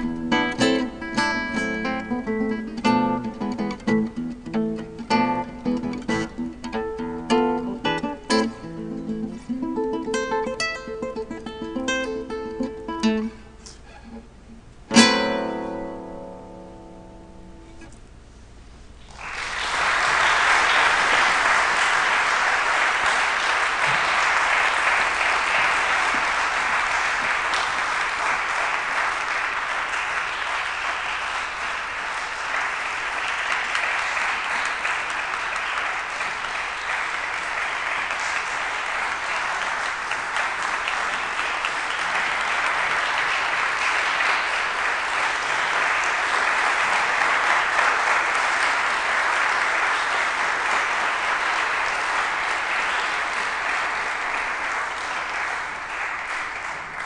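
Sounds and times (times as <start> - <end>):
audience applauding: 19.0 - 57.0.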